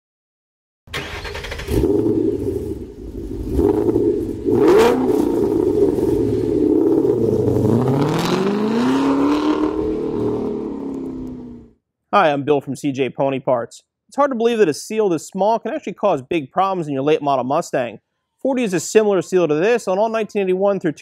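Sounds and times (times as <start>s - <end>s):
car engine revving: 0.9s - 11.7s.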